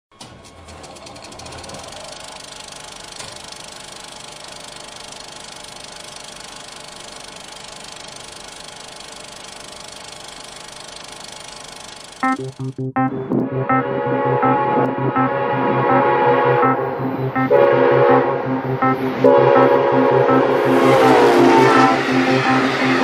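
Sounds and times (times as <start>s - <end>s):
machine running with hiss: 1.1s - 12.2s
music: 12.2s - 23.0s.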